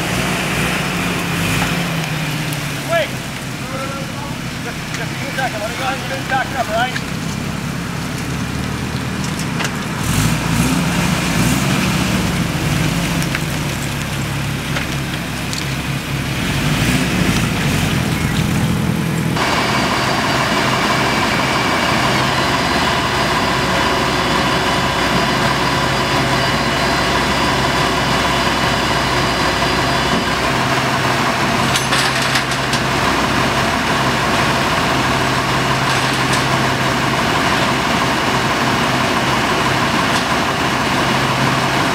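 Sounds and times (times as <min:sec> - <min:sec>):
heavy truck engine idling: 0:00.0 - 0:41.9
vehicle engine revving: 0:00.0 - 0:41.9
steady high whine: 0:17.2 - 0:41.9.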